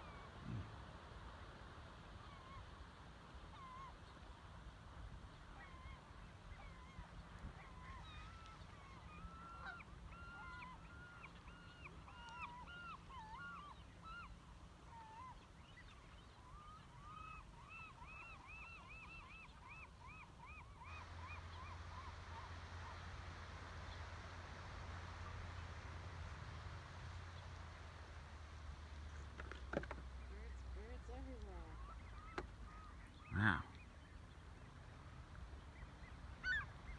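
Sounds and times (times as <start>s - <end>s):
waterbirds honking: 7.8s - 14.3s, 29.3s - 34.0s.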